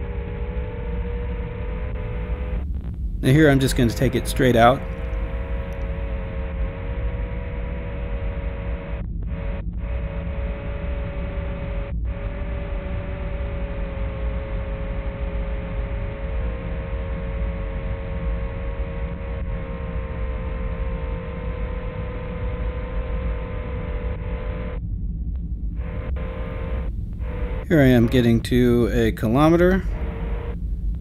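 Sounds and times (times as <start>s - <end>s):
constant rush of noise: 0.0s - 31.0s
quadcopter motors whining: 3.2s - 7.8s, 25.8s - 28.5s.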